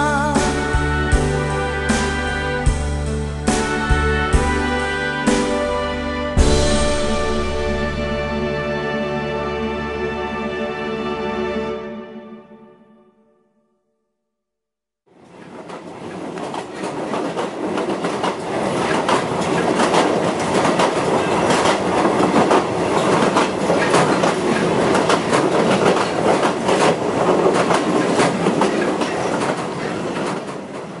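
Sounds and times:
train wheels clattering on rails: 15.3 - 31.0.

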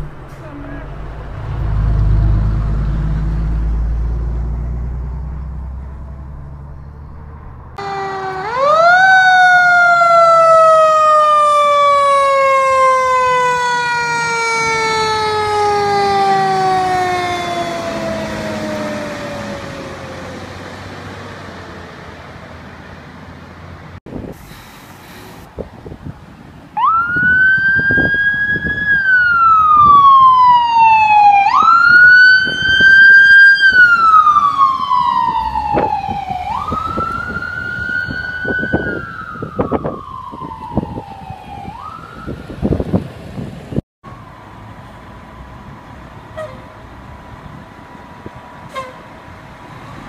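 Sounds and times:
diesel engine rumbling: 0.0 - 50.0.

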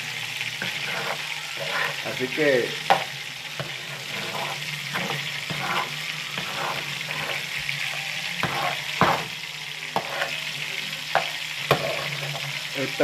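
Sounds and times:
rice sizzling in a frying pan: 0.0 - 13.0
utensil scraping a pan: 0.5 - 13.0.

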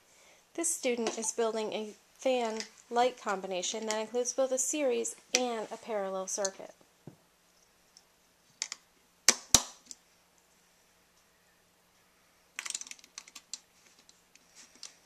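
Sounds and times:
plastic pieces snapping together: 8.6 - 10.0
plastic clicks and rattles: 12.6 - 14.2.

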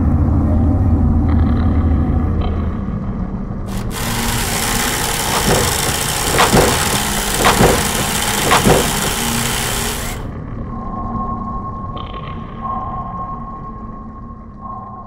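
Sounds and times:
low engine-like rumble: 0.0 - 3.7.

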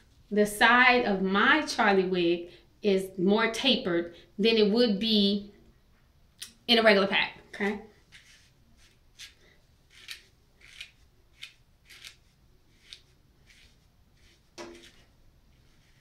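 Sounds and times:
fingers rustling wig hair: 8.0 - 16.0.

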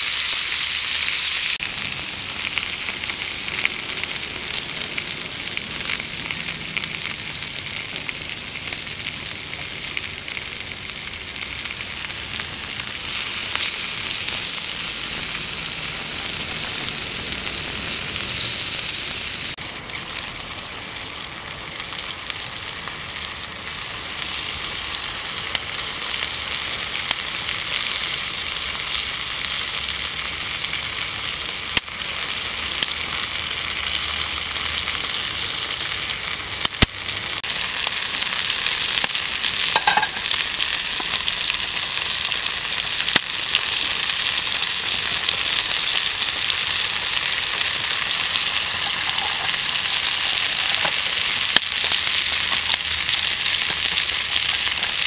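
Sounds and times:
food sizzling in a pan: 0.0 - 55.0.

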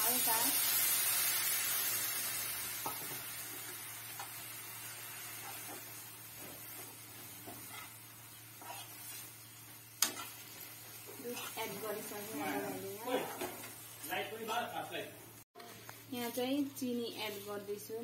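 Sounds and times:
milk sizzling in a frying pan: 0.0 - 14.8, 15.6 - 18.0
metal spoon scraping pan: 7.4 - 8.0, 8.6 - 9.3, 10.0 - 10.5, 11.2 - 11.8.

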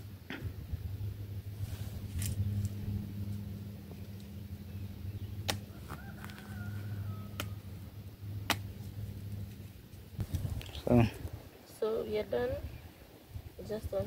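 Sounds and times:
steady low hum: 0.0 - 14.0
stick knocking on cactus: 5.4 - 6.4, 7.4 - 7.6, 8.4 - 8.9
rooster crowing faintly: 5.5 - 7.8.

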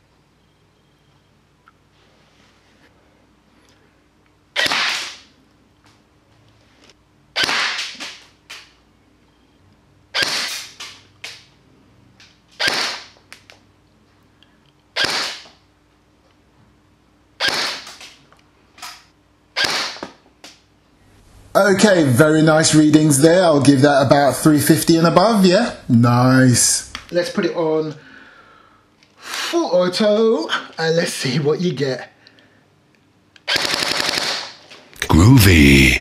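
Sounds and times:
airsoft gun shots: 4.6 - 5.3, 7.4 - 8.2, 10.2 - 11.0, 12.6 - 13.2, 15.0 - 15.4, 17.4 - 18.0, 19.6 - 20.1, 33.5 - 34.6.

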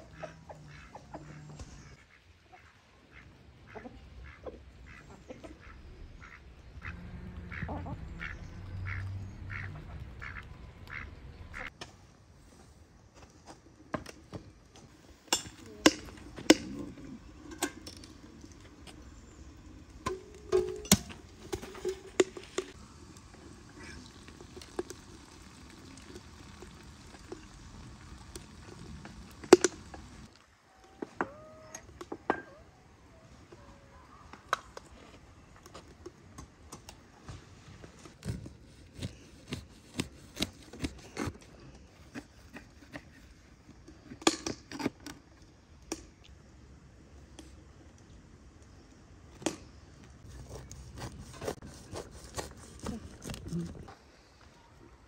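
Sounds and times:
poultry calling: 0.0 - 11.7.

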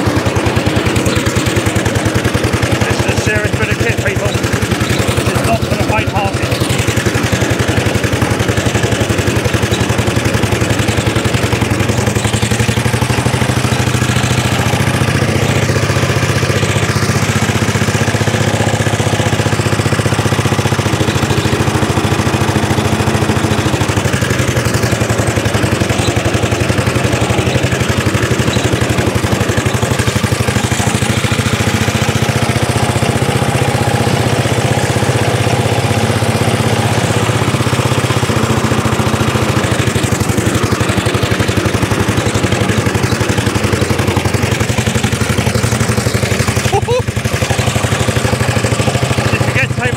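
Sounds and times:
lawn mower engine running: 0.0 - 49.9.

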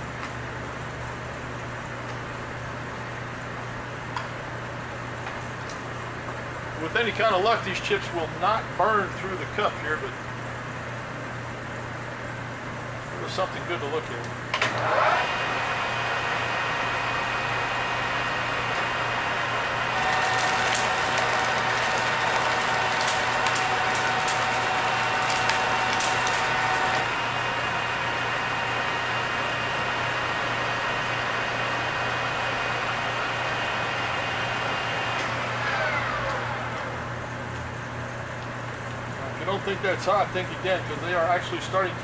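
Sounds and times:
lathe motor and gear whine: 13.1 - 42.0
metal chips crackling into cup: 20.0 - 27.2.

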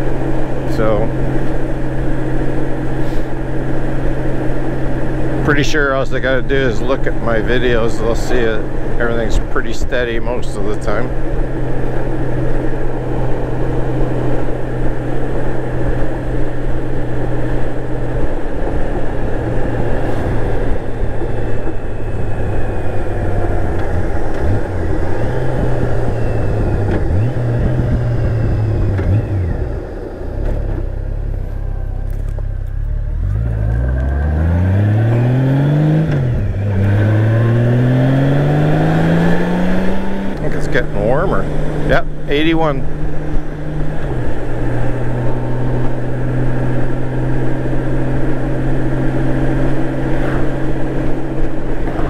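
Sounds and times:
motorcycle engine running: 0.0 - 52.0
road noise: 0.0 - 52.0
wind noise: 11.1 - 30.0.

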